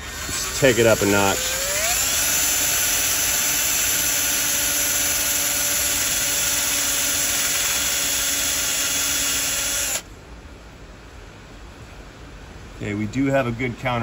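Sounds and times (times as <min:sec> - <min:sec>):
power drill whining: 0:00.0 - 0:10.0.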